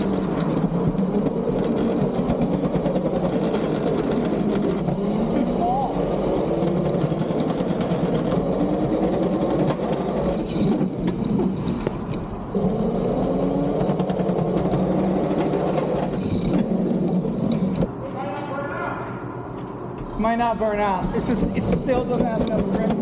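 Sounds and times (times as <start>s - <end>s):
electric motor whining: 0.0s - 17.9s.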